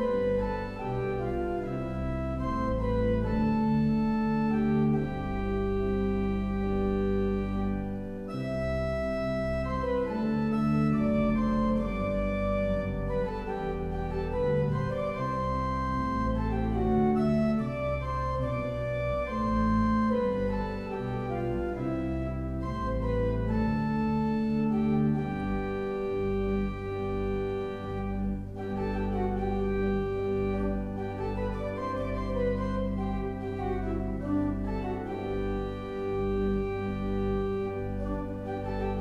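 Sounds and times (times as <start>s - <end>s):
organ chords: 0.0s - 39.0s.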